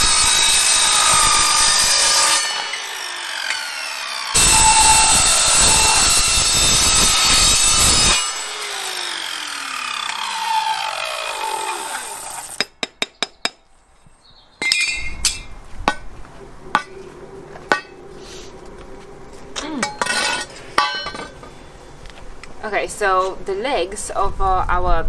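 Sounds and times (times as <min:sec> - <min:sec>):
saw blade spinning down: 0:00.0 - 0:12.6
mitre saw cutting metal: 0:00.0 - 0:12.7.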